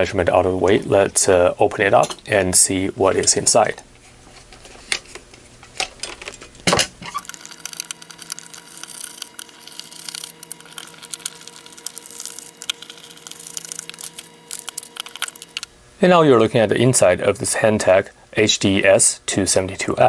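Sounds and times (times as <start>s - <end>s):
faint steady hum: 6.3s - 20.0s.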